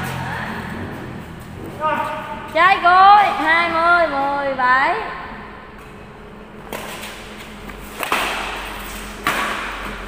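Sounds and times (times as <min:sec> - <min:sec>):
racquets hitting shuttlecock: 0:06.6 - 0:10.0.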